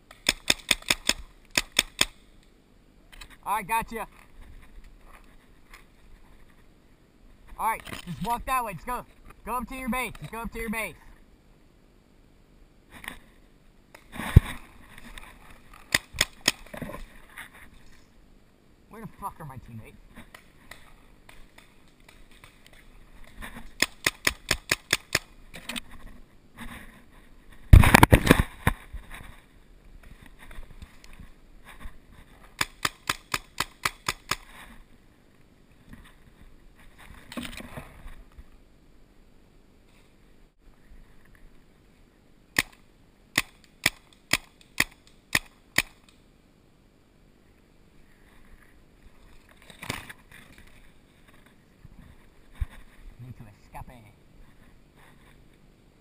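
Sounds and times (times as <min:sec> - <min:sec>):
sharp cracks: 0:00.0 - 0:02.5, 0:15.7 - 0:16.9, 0:20.2 - 0:22.8, 0:23.7 - 0:25.8, 0:27.7 - 0:28.8, 0:32.6 - 0:34.6, 0:42.5 - 0:46.2
paintball marker firing: 0:00.1 - 0:02.2, 0:15.9 - 0:16.7, 0:23.8 - 0:25.3, 0:32.6 - 0:34.5, 0:43.4 - 0:46.1.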